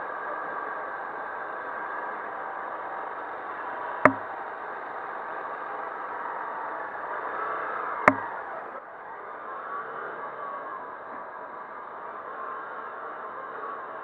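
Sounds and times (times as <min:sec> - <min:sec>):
sharp clicks: 0:04.0 - 0:04.3, 0:08.1 - 0:08.4
motorcycle engine idling: 0:04.0 - 0:04.4, 0:08.1 - 0:08.6.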